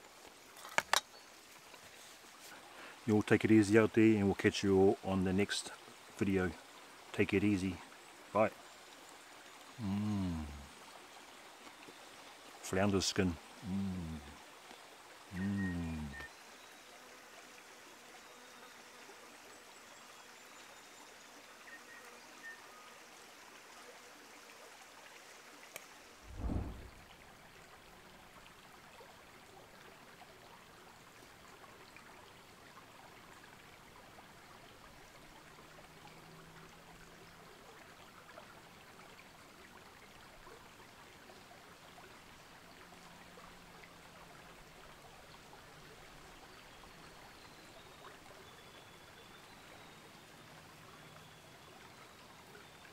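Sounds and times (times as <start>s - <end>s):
creek trickling: 0.0s - 52.9s
low thump: 26.3s - 27.1s.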